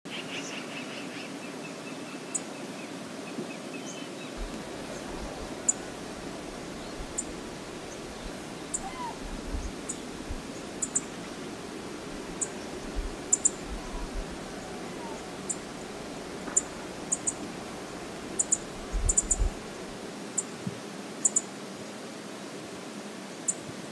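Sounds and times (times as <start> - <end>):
river water flowing: 2.5 - 23.9
wind rumble on microphone: 4.4 - 20.0.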